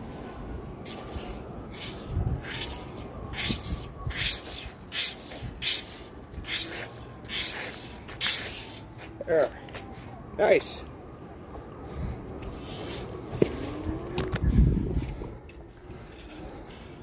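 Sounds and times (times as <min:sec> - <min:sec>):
rake scraping through grass: 0:00.0 - 0:09.0.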